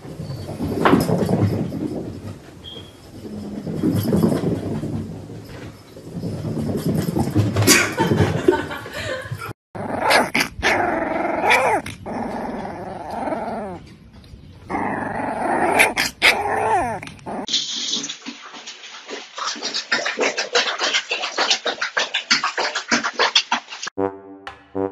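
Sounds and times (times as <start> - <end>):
puppy growling: 9.8 - 13.8, 14.7 - 17.5
puppy yipping barks: 10.0 - 11.8.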